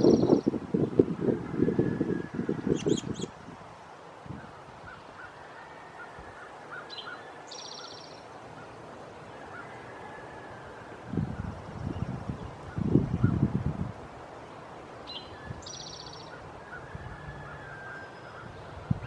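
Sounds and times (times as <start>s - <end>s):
songbird chirp: 0.0s - 1.0s, 4.5s - 13.4s, 14.2s - 19.0s
wind rumble on microphone: 0.0s - 5.0s, 10.6s - 14.3s, 15.1s - 19.0s.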